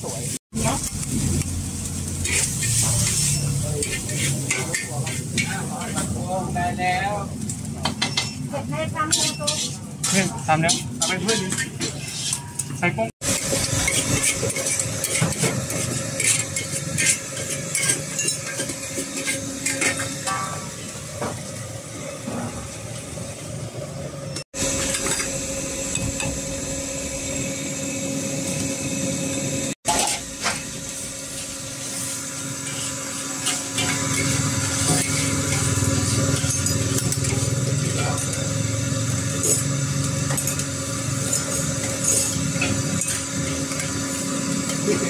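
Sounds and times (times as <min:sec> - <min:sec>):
gas burner roaring: 0:00.0 - 0:45.0
metal spatula scraping a wok: 0:02.0 - 0:06.1, 0:08.3 - 0:20.7, 0:29.9 - 0:38.5, 0:39.3 - 0:45.0.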